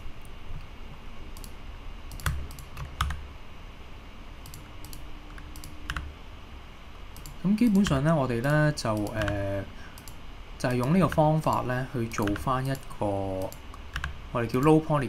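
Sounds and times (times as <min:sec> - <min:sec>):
keyboard keys clicking: 0:02.1 - 0:03.2, 0:07.2 - 0:11.6.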